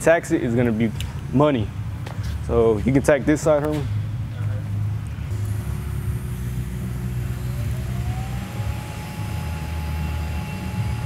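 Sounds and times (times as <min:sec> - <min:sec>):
welding arc hum and rumble: 0:04.0 - 0:11.0
faint rising whine: 0:05.2 - 0:11.0.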